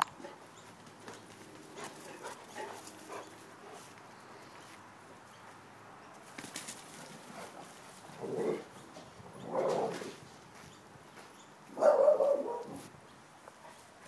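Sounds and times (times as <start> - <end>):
clicks and scuffles of dogs playing: 0.0 - 4.9, 5.5 - 11.4.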